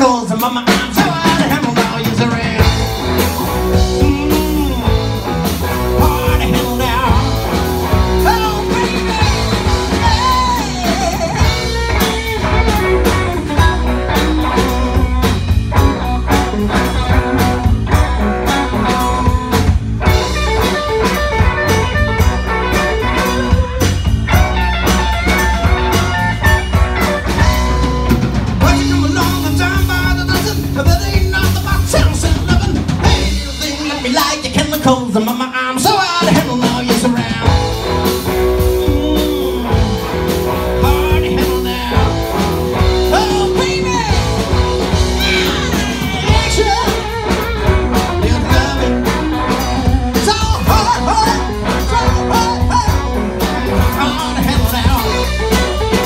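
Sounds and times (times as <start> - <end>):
drum kit beat: 0.0 - 56.0
electric guitars: 0.0 - 56.0.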